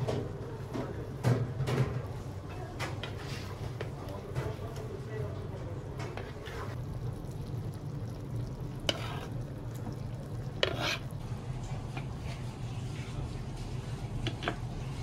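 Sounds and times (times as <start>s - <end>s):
metal utensil scraping pot: 8.8s - 9.5s, 10.5s - 11.2s
metallic clatters against pot: 14.2s - 14.7s.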